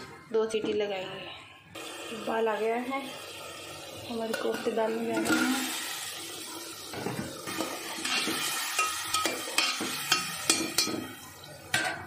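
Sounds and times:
sizzling curry gravy boiling: 0:01.8 - 0:11.7
metal spatula stirring: 0:08.0 - 0:11.0
spatula clinking against pot: 0:08.0 - 0:11.1.

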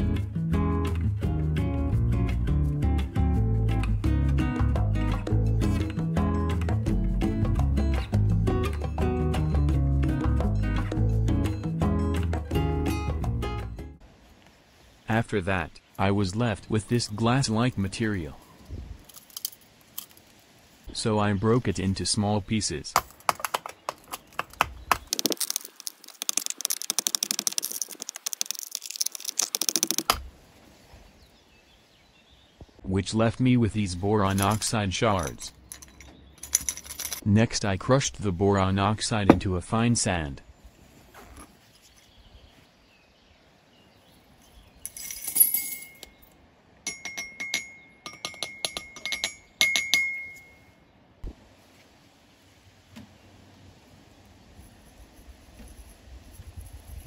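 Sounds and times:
glass shards rattling out: 0:34.3 - 0:37.2, 0:44.8 - 0:46.1
glass clinking in metal mortar: 0:44.8 - 0:46.2, 0:46.8 - 0:50.7.

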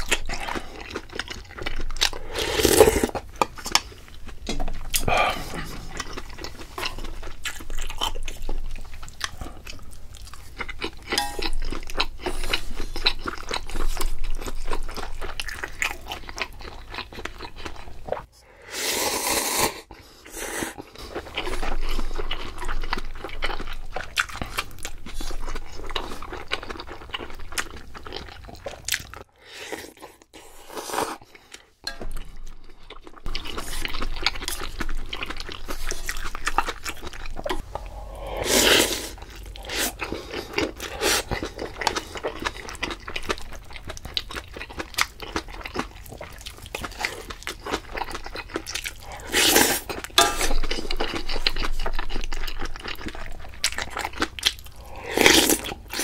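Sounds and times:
person chewing and crunching: 0:00.0 - 0:56.0.

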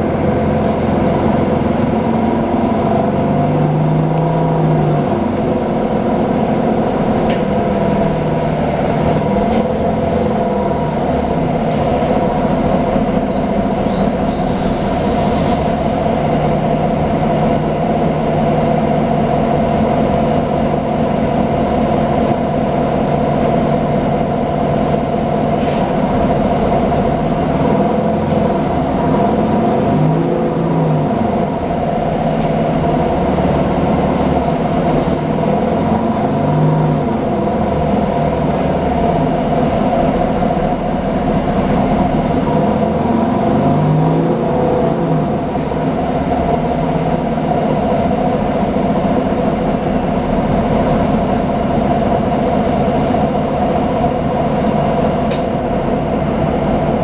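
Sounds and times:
bus engine and road drone: 0:00.0 - 0:57.0
air hiss: 0:14.4 - 0:16.1.

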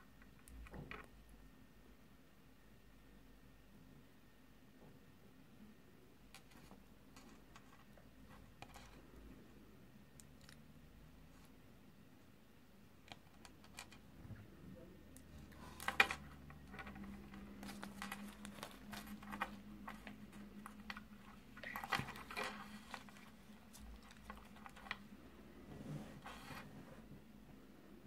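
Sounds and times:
wrapper crinkling: 0:15.4 - 0:25.0.

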